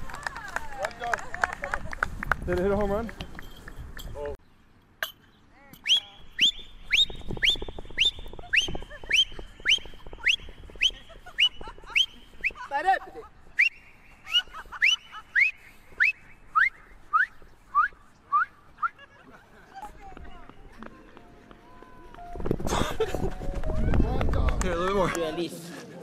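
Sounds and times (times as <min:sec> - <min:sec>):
short whistled calls: 0:05.8 - 0:12.7, 0:13.5 - 0:19.0.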